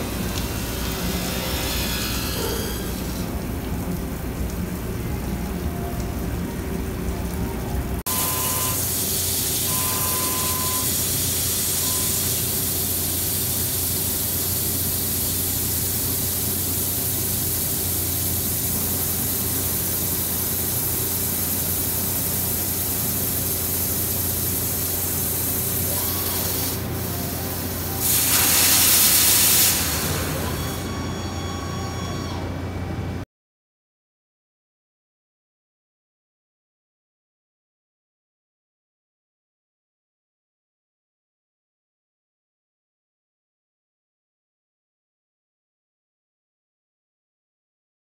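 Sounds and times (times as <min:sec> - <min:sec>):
thin machine whine: 0:00.0 - 0:03.9, 0:08.1 - 0:13.4, 0:25.6 - 0:28.7, 0:29.3 - 0:33.2
coolant spraying hiss: 0:00.0 - 0:05.5, 0:08.1 - 0:30.8
low machine hum: 0:00.0 - 0:09.0, 0:15.5 - 0:28.1, 0:29.8 - 0:33.2.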